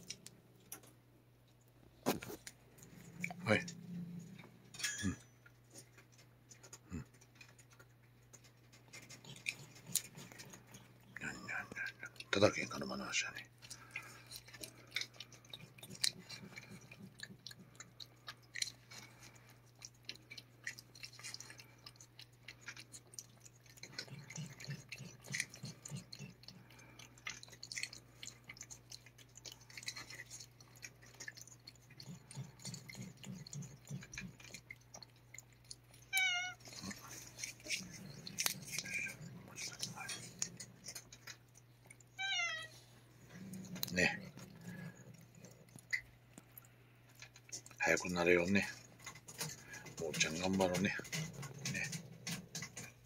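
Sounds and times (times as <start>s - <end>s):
cat licking: 5.7s - 53.0s
cat wavering call: 36.1s - 36.6s, 42.2s - 42.8s.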